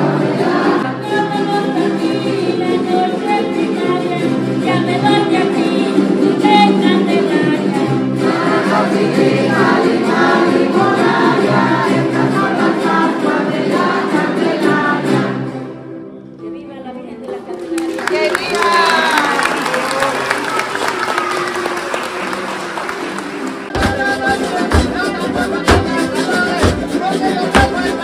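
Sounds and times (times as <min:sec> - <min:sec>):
group of voices singing: 0:00.0 - 0:15.8, 0:23.7 - 0:28.0
strummed small guitars: 0:00.0 - 0:15.9, 0:23.7 - 0:28.0.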